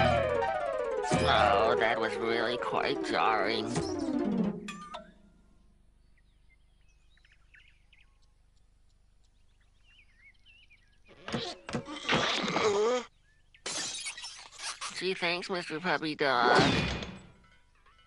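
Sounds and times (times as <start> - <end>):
cartoon crashing and clattering effects: 2.8 - 5.0, 16.4 - 17.4.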